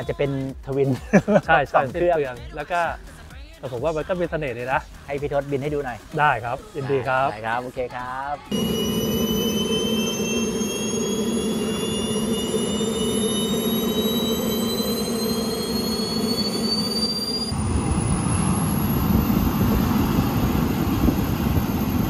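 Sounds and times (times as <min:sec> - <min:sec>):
model jet turbines whining: 0:08.4 - 0:22.0
rough jet rush: 0:08.5 - 0:22.0.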